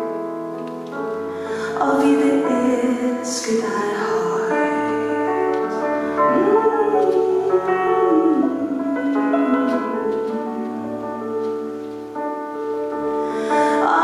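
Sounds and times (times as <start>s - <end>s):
piano chords: 0.0s - 14.0s
woman singing: 1.5s - 11.7s, 13.3s - 14.0s.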